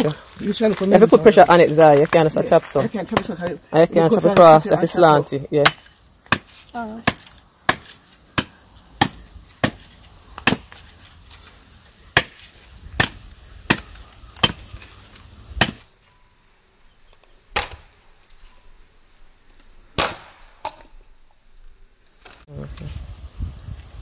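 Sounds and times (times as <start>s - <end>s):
firewood being chopped: 0.0s - 4.9s, 5.6s - 15.9s, 17.5s - 18.0s, 20.0s - 21.0s.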